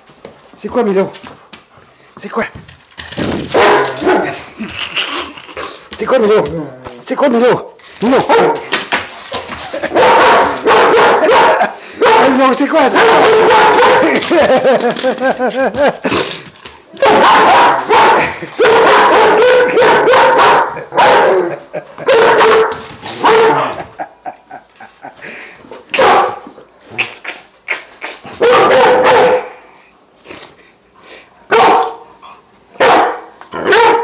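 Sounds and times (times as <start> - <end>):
dog barking: 3.6 - 4.4, 8.2 - 8.6, 9.9 - 14.2, 17.0 - 23.8, 25.9 - 26.4, 28.4 - 29.6, 31.5 - 32.0, 32.8 - 34.0.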